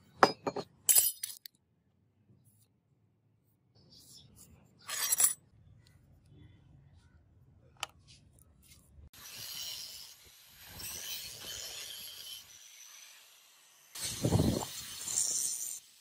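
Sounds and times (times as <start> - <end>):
angle grinder cutting steel: 9.2 - 16.0.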